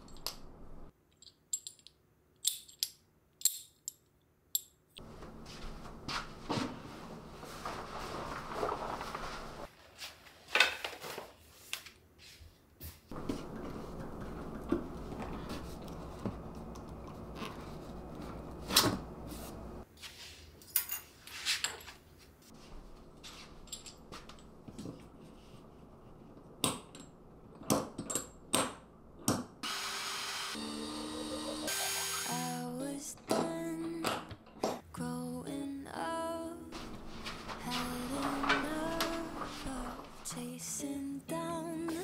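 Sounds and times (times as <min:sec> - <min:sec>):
cloth rustling: 0:05.0 - 0:12.4
cordless drill running: 0:29.6 - 0:32.6.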